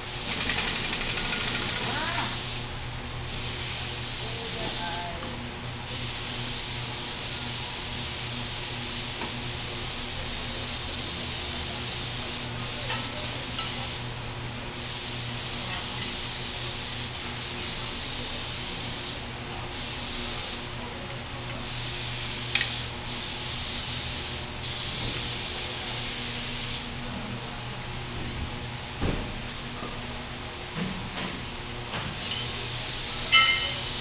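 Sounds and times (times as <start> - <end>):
low hum of workshop machinery: 0.0 - 34.0
hissing spray bursts: 21.7 - 26.9.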